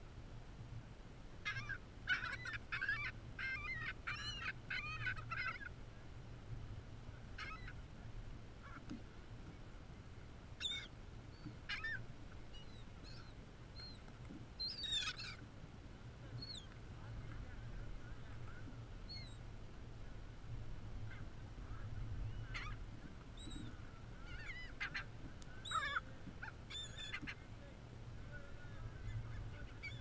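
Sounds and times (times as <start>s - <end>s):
gulls calling: 1.4s - 5.8s, 7.2s - 7.9s, 10.6s - 15.5s, 16.2s - 19.5s, 21.0s - 30.0s.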